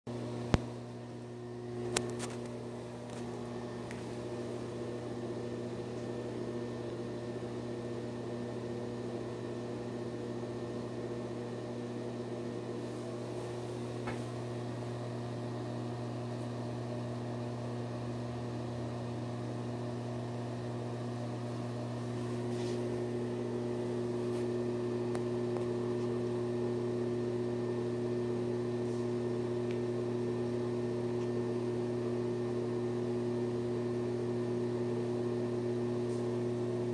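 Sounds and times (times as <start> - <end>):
exhaust fan motor hum: 0.1 - 36.9.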